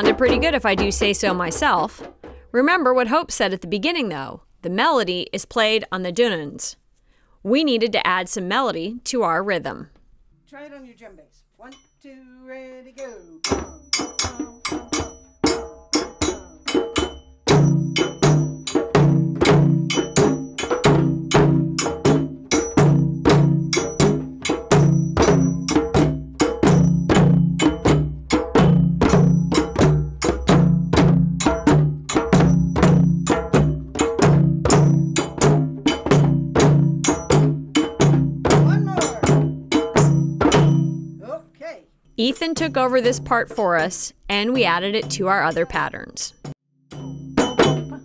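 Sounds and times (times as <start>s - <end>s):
djembe hand drums: 0.0s - 2.5s, 13.5s - 41.2s, 42.3s - 45.8s, 46.4s - 48.0s
dunun drums struck with sticks: 0.0s - 2.5s, 13.4s - 41.2s, 42.5s - 48.0s
metal bell struck in time: 13.0s - 19.1s, 46.9s - 48.0s.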